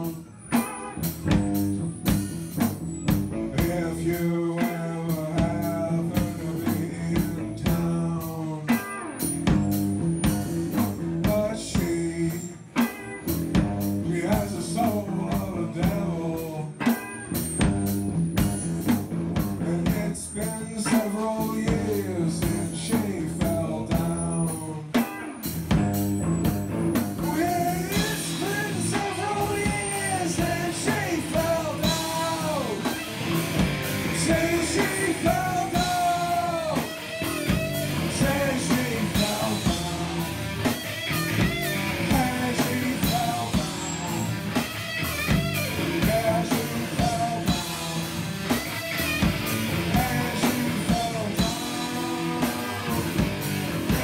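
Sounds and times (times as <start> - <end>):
man singing into a microphone: 0.0 - 0.6, 3.4 - 9.0, 10.7 - 12.8, 14.0 - 17.0, 19.6 - 25.1, 27.2 - 33.4, 34.0 - 44.7, 45.3 - 48.6, 49.6 - 53.2
drum kit: 0.0 - 54.0
electric guitar: 0.0 - 54.0.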